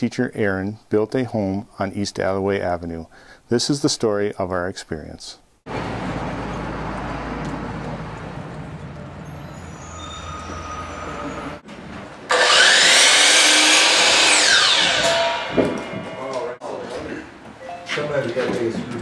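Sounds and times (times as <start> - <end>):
construction machinery hum: 5.7 - 16.5
power saw running: 12.3 - 16.2.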